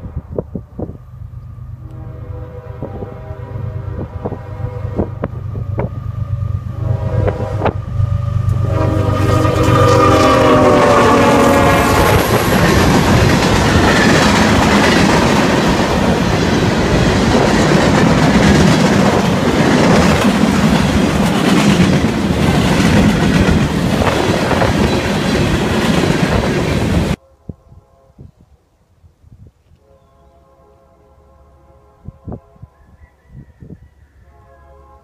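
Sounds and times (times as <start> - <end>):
train horn: 1.7 - 15.4, 27.1 - 28.6, 29.7 - 35.0
train wheels clattering on rails: 12.1 - 27.2.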